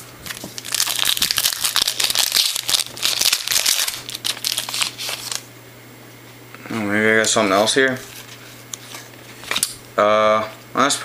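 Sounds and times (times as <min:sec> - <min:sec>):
foil wrapper crinkling and tearing: 0:00.3 - 0:05.5.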